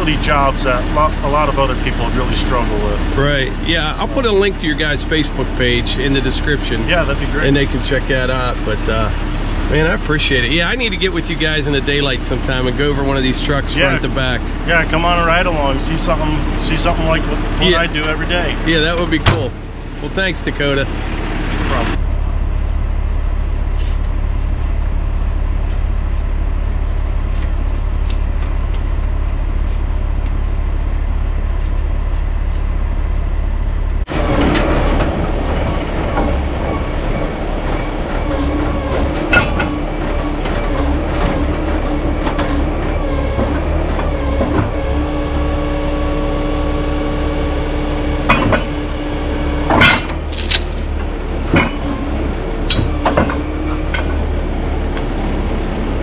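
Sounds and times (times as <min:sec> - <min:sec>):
mechanical whine and hum: 0:00.0 - 0:56.0
truck engine low rumble: 0:00.0 - 0:56.0
metal chains clanking: 0:49.7 - 0:51.8, 0:52.6 - 0:54.2.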